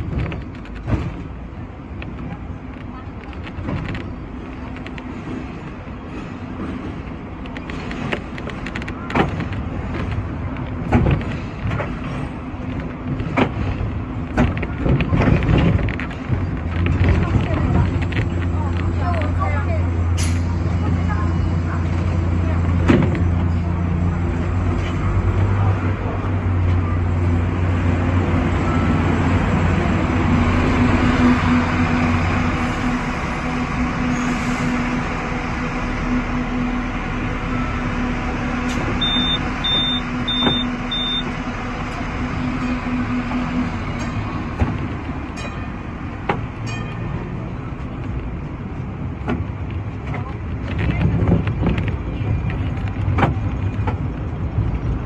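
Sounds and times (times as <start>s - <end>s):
tram running rumble: 0.0s - 55.0s
short high beeps: 39.0s - 41.3s.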